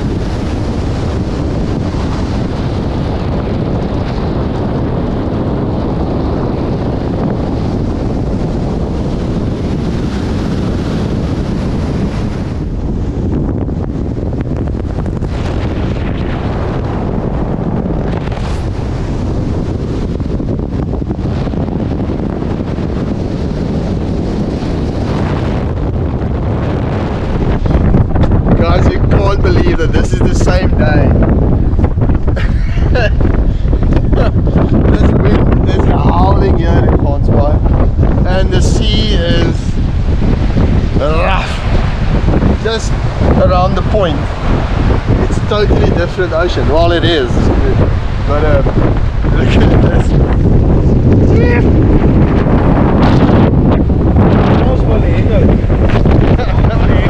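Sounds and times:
wind rushing over microphone: 0.0 - 57.0
road rumble: 39.5 - 57.0.

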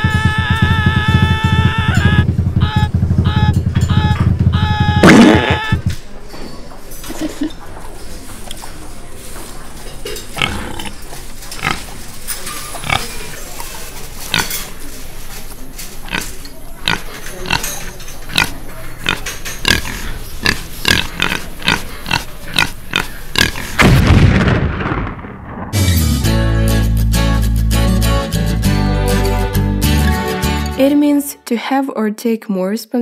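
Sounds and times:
cartoon chomping and gobbling: 0.0 - 5.8
loud low boom: 0.1 - 5.8, 23.8 - 26.2.

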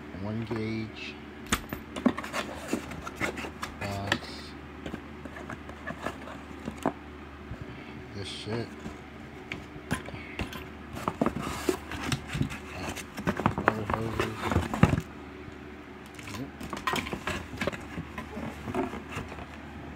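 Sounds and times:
cardboard box scraping and knocking: 2.0 - 3.6, 10.9 - 15.1, 16.7 - 19.5.

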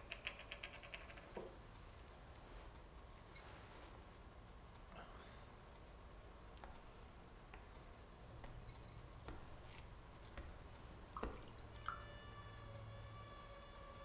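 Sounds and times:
faint clicks and taps: 0.0 - 3.9, 6.5 - 12.1
soft music with held tones: 8.6 - 14.0.

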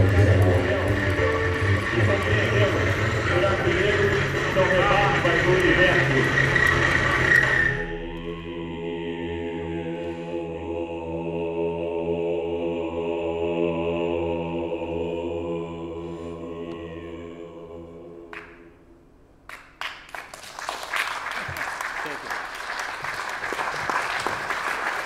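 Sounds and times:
low chant-like drone: 0.0 - 18.9.

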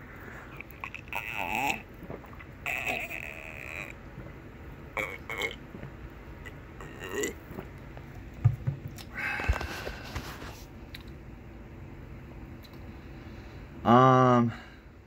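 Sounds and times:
gulping sounds: 0.2 - 7.8
person sipping and swallowing: 0.2 - 7.9
bottle set down on desk: 8.4 - 9.0.

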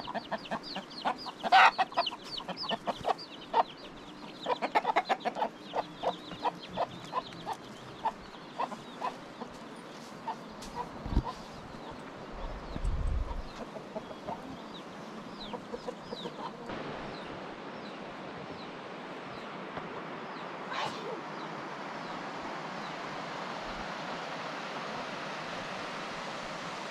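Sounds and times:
chickens clucking: 0.0 - 18.0
small birds chirping: 0.0 - 23.7.

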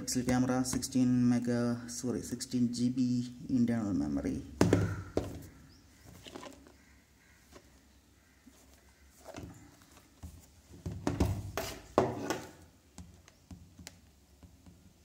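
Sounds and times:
box knocks and rustles on table: 10.3 - 12.6.

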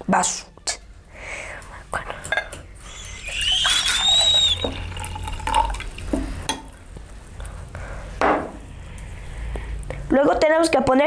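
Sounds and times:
tea pouring into metal tin: 3.5 - 6.2.

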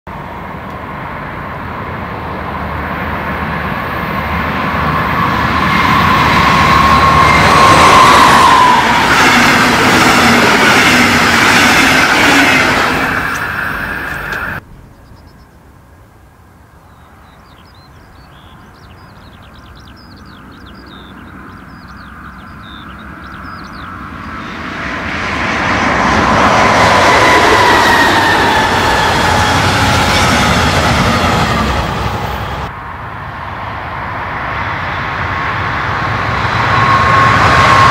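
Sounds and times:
train passing loudly: 0.1 - 14.6, 18.3 - 37.9
diesel train passing: 0.1 - 37.9
faint birdsong: 13.6 - 16.0, 16.7 - 24.5.

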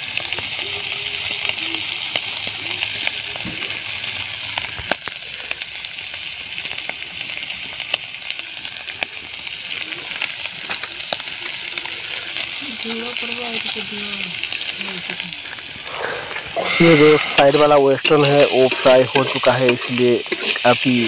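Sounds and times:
meat frying in hot oil: 0.0 - 21.0
oil spitting and popping: 14.4 - 21.0.

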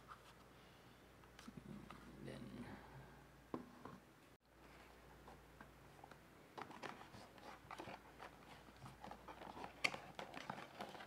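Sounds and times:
cardboard box crinkling and clicking: 6.6 - 11.0.

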